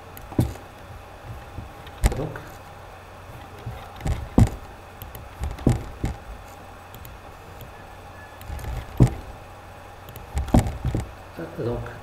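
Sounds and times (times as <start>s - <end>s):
faint background noise: 0.0s - 12.0s
dull knocks and taps: 5.3s - 6.2s, 8.5s - 9.3s, 10.3s - 11.1s.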